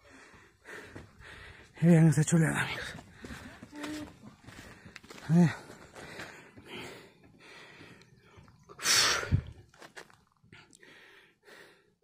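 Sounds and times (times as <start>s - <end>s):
heavy panting breaths: 0.0s - 1.8s, 2.6s - 9.5s.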